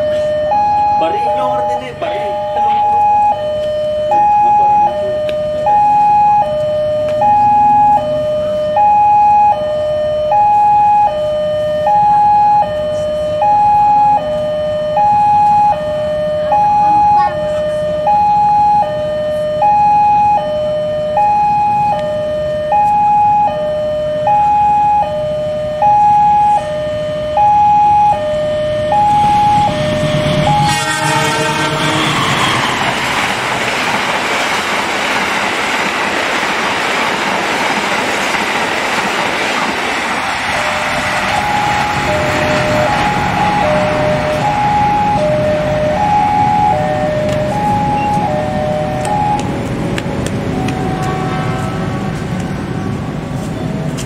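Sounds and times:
passing train rushing: 0.0s - 5.6s, 28.1s - 54.0s
level crossing warning alarm: 0.0s - 35.0s, 40.1s - 54.0s.

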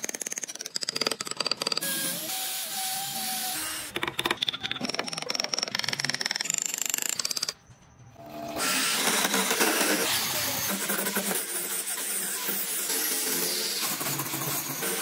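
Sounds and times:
blade cutting turning wood: 0.0s - 7.6s, 8.2s - 15.0s
electric drill whirring: 1.6s - 4.0s, 8.2s - 15.0s.

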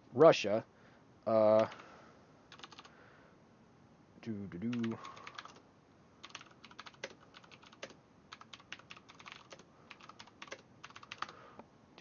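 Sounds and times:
typing on computer keyboard: 2.5s - 2.9s, 4.7s - 5.6s, 6.2s - 11.4s.

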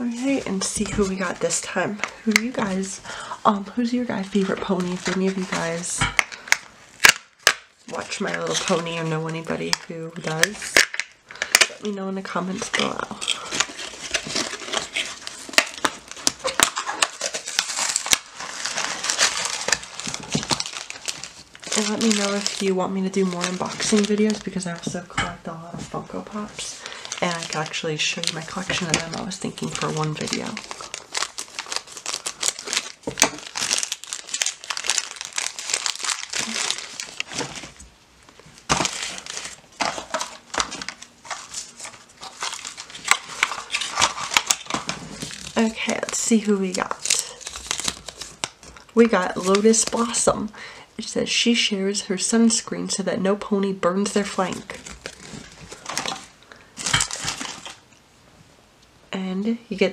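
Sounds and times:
plastic packaging crinkling: 0.0s - 25.2s, 25.8s - 50.5s, 54.0s - 58.0s
scissors cutting wrapper: 12.5s - 24.9s, 26.8s - 37.8s, 38.6s - 50.2s.

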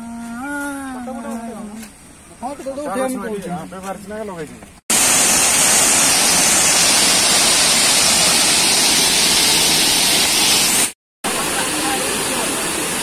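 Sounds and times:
waterfall rushing: 4.9s - 13.0s.

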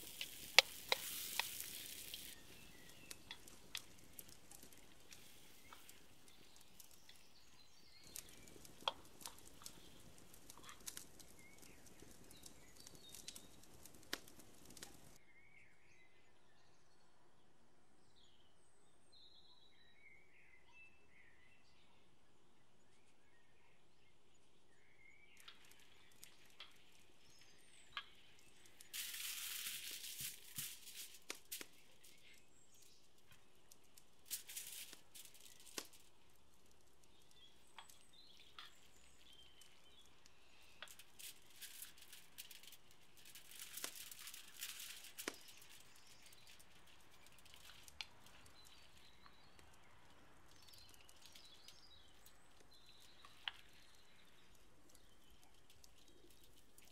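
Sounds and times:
small clicks: 0.0s - 7.3s, 8.0s - 15.2s, 25.4s - 56.9s
aluminium foil crinkling: 0.0s - 15.2s, 25.4s - 56.9s
faint bird chirps: 0.0s - 17.2s, 43.4s - 56.9s.

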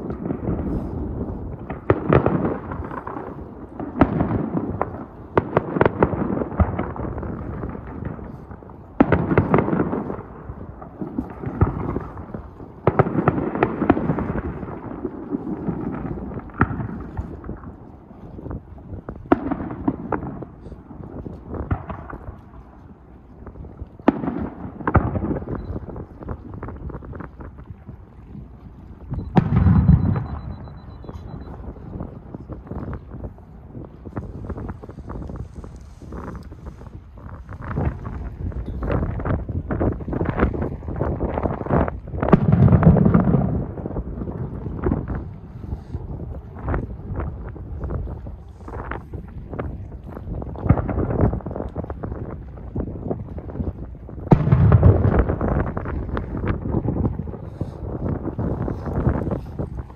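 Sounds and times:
fireworks bursting with sharp bangs: 0.0s - 22.8s, 23.6s - 28.3s, 29.0s - 59.9s
continuous low rumble: 0.0s - 59.9s
low rumbling boom: 29.1s - 33.1s, 41.6s - 47.9s, 54.2s - 59.9s.

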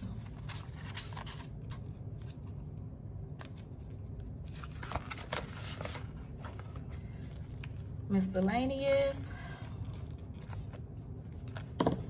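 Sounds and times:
steady low hum: 0.0s - 12.0s
banknotes rustling: 0.1s - 7.9s.

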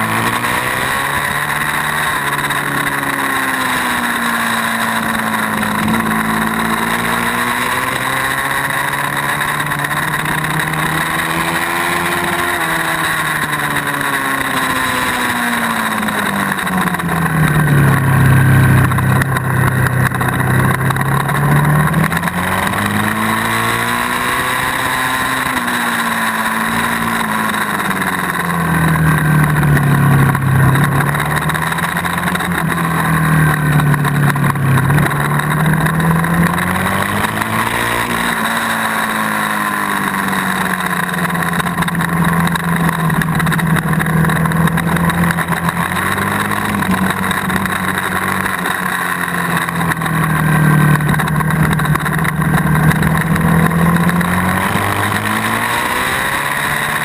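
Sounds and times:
motorcycle engine revving: 0.0s - 57.0s
wind and road noise: 0.0s - 57.0s.

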